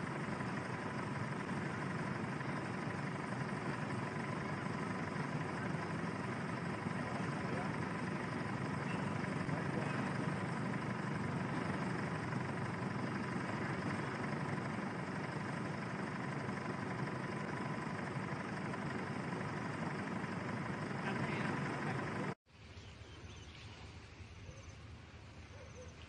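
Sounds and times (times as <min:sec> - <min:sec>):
faint steady tone: 0:00.0 - 0:22.4
outdoor ambience: 0:00.0 - 0:26.0
vehicle engine idling: 0:00.0 - 0:26.0.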